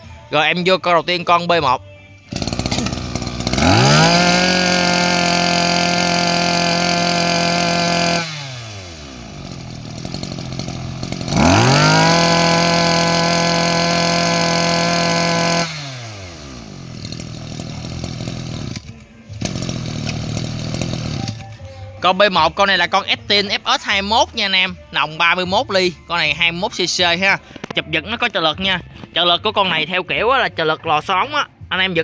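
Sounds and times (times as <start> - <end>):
brush cutter engine revving: 2.3 - 21.6
starter cord pull: 2.3 - 21.7.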